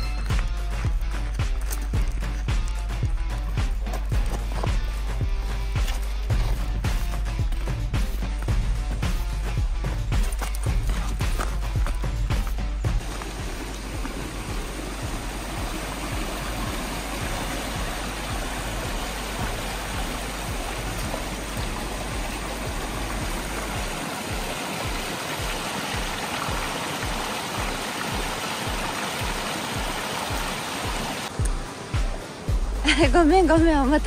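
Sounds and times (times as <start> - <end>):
background music with low beat: 0.0 - 34.0
creek splashing over rocks: 10.1 - 31.4.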